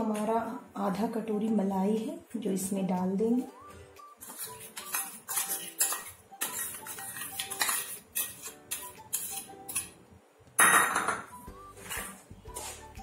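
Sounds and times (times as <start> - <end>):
soft background music: 0.0 - 13.0
spoon scraping steel bowl: 4.2 - 10.0, 11.8 - 12.8.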